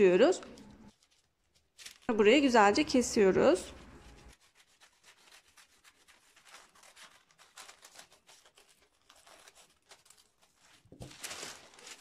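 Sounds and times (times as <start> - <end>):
paper rustling: 0.4 - 12.0
scissors cutting paper: 3.6 - 12.0.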